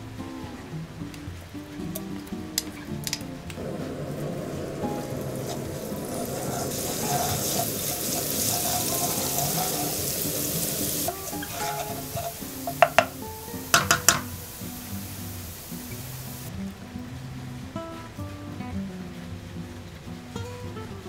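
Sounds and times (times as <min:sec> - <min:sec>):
background music: 0:00.0 - 0:21.0
garlic sizzling in oil: 0:03.0 - 0:16.5.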